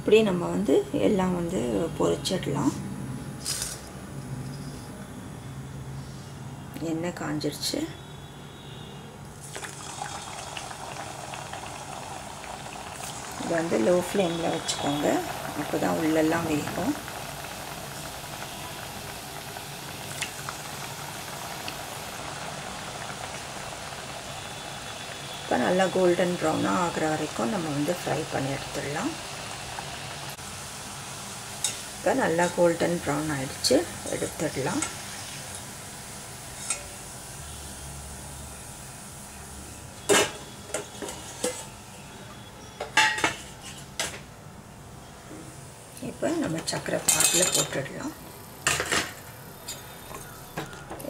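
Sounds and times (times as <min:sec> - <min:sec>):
dough deep-frying in oil: 0:08.5 - 0:44.1
steel kitchenware clinking: 0:42.8 - 0:43.9, 0:46.8 - 0:47.9.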